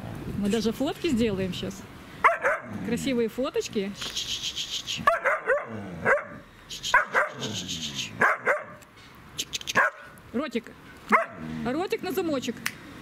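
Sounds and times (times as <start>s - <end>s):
dog barking: 2.2s - 2.7s, 5.0s - 7.5s, 8.2s - 8.8s, 9.8s - 10.1s, 11.1s - 11.4s.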